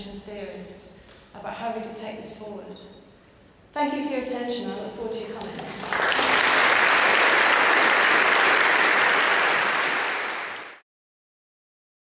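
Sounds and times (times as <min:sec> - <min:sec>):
audience applauding: 0:05.8 - 0:10.8.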